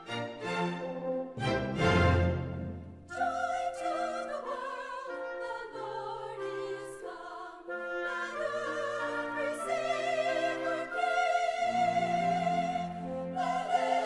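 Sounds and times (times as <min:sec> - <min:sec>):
orchestral music: 0:00.0 - 0:14.0
operatic singing voice: 0:03.1 - 0:14.0.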